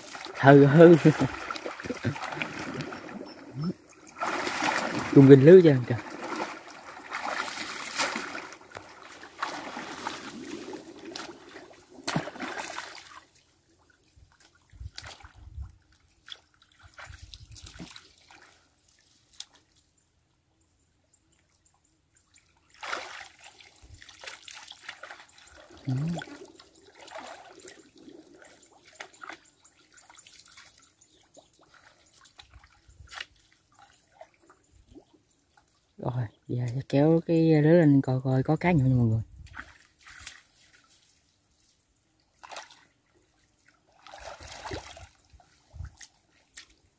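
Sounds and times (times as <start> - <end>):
shallow water splashing: 0.0 - 19.5, 22.6 - 35.9, 42.3 - 46.9.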